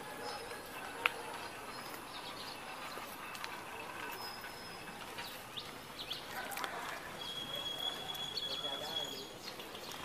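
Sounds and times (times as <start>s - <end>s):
faint outdoor ambience: 0.0s - 10.0s
bird chirps: 0.2s - 10.0s
high steady whistle: 7.2s - 9.4s.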